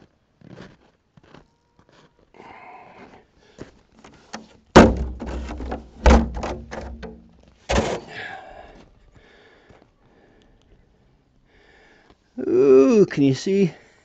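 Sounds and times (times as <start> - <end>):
scrapes against well casing: 4.3 - 8.1.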